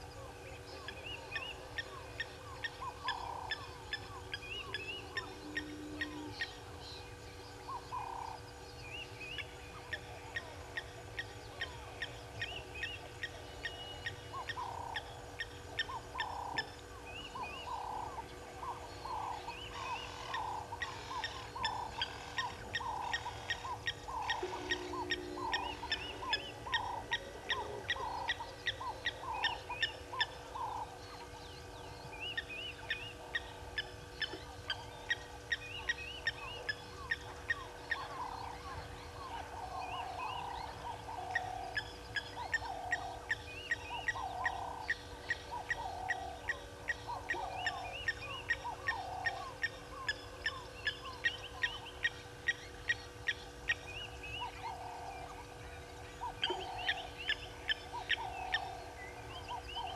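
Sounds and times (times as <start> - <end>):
birds ticking: 0.9 - 6.6, 9.2 - 59.9
birds calling short notes: 22.4 - 28.4.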